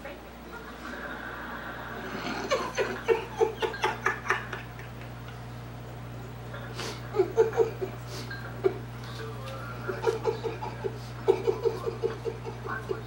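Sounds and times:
steady low hum: 0.0 - 13.0
man laughing hard: 1.9 - 5.3, 6.7 - 8.0, 9.9 - 13.0.

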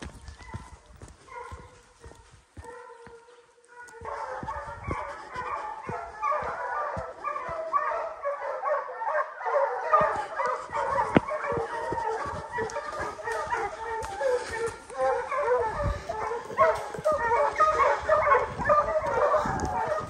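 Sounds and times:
hounds baying: 0.0 - 20.0.

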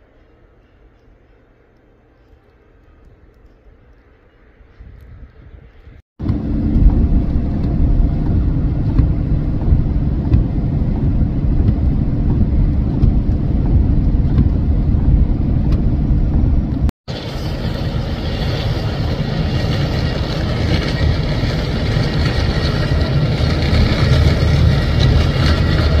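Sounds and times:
mechanical noise with high whine: 0.0 - 26.0
vehicles rumbling on highway: 5.6 - 26.0.

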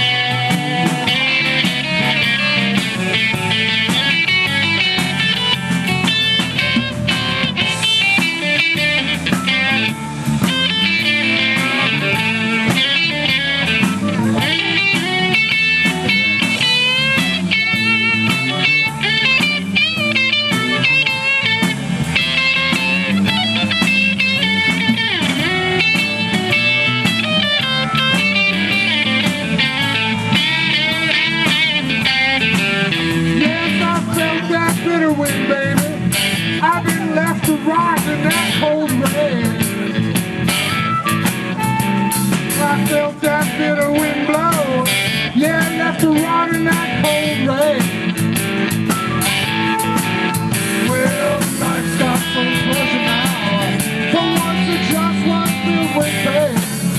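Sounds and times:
blues band playing: 0.0 - 56.9
electric guitar solo: 0.0 - 56.9.

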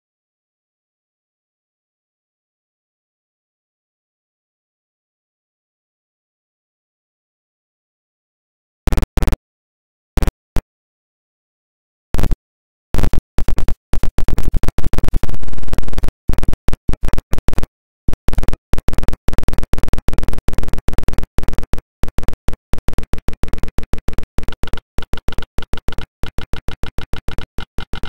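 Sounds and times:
stuttering digital glitch noise: 13.0 - 17.6, 18.3 - 28.0.

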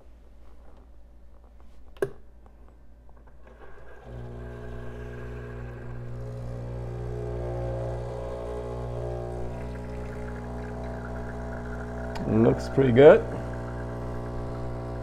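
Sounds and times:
espresso machine pump buzzing: 3.9 - 15.0.

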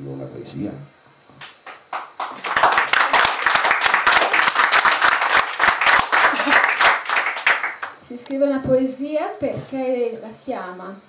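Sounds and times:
audience applause: 1.7 - 8.0.

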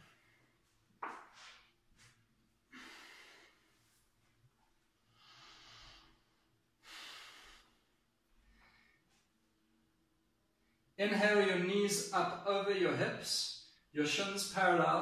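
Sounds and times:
man breathing: 2.7 - 3.9, 5.1 - 9.3.

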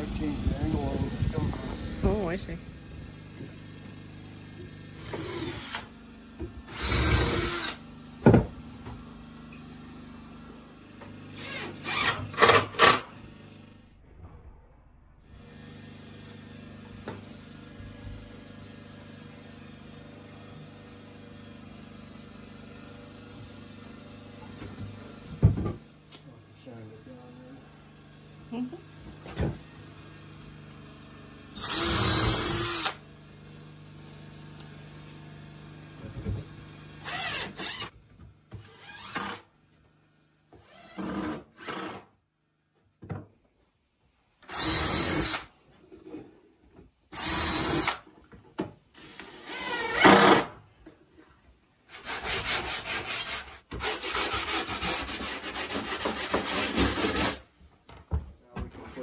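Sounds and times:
cordless drill running: 4.4 - 6.0, 6.6 - 7.9, 11.2 - 13.2, 31.5 - 33.1, 37.0 - 38.0, 38.6 - 39.5, 40.6 - 42.0, 44.4 - 45.5, 47.1 - 48.1, 48.9 - 50.6.

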